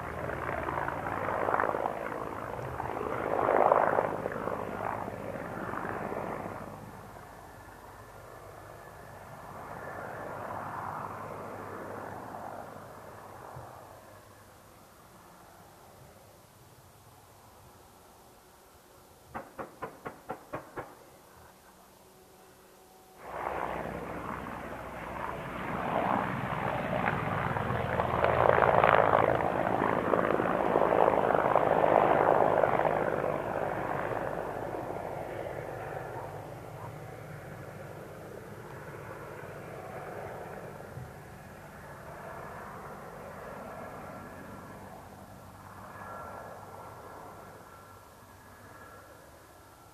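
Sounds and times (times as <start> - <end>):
helicopter drone: 0.0 - 49.9
helicopter gunfire reports: 19.3 - 21.1.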